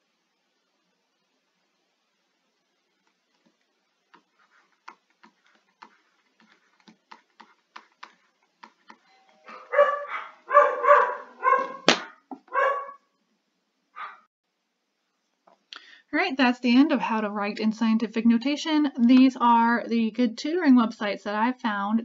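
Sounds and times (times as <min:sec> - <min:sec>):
stylus tapping on tablet screen: 0:03.1 - 0:09.1
dog barking: 0:09.5 - 0:13.1, 0:13.9 - 0:14.3.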